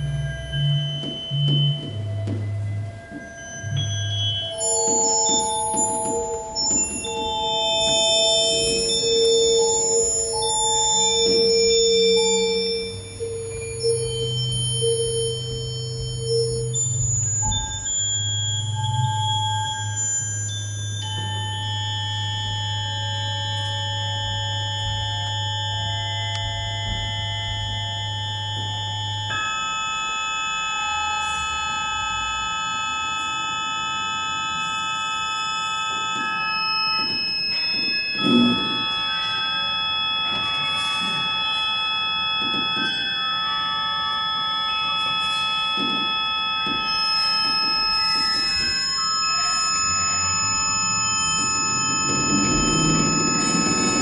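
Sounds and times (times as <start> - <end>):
steady electronic tones: 0.0 - 54.0
low hum: 50.4 - 54.0.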